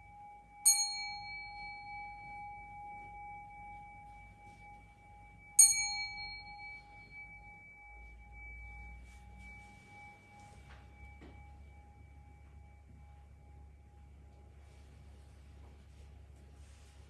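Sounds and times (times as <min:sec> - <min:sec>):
small bell high ring: 0:00.0 - 0:13.1
bowl bell two-tone hum: 0:00.0 - 0:16.7.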